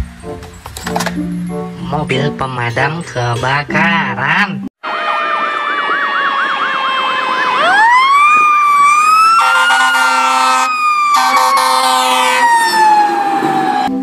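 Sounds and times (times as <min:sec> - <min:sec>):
fire engine siren: 0:04.8 - 0:14.0
air horn blasts: 0:09.3 - 0:12.5.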